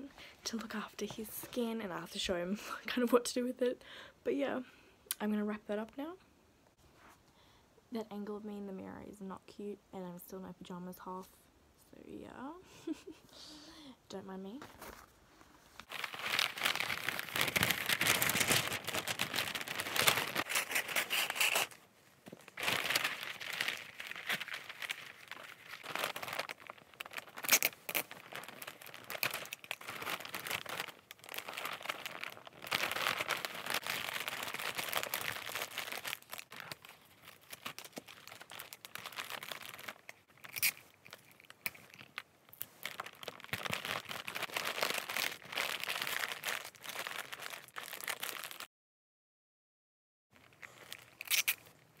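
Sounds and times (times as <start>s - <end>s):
wrapping paper crinkling: 15.7s - 48.7s, 50.4s - 51.8s
sticky tape ripping: 16.4s - 21.8s, 22.6s - 28.2s, 51.1s - 51.7s.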